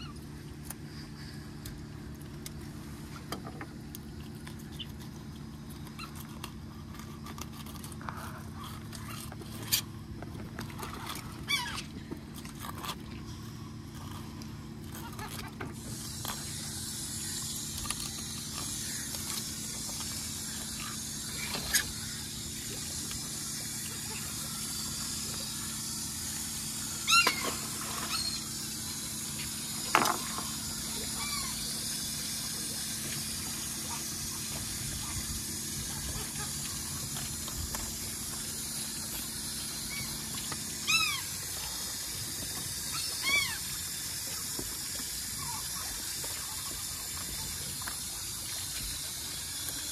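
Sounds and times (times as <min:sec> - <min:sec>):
short high falling calls: 0:26.9 - 0:29.0, 0:39.6 - 0:41.4, 0:42.9 - 0:43.8.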